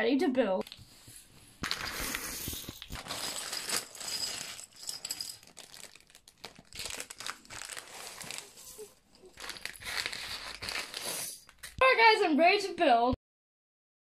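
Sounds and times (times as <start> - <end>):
plastic bricks spilling: 1.6 - 8.6
plastic bags crinkling: 1.6 - 11.8.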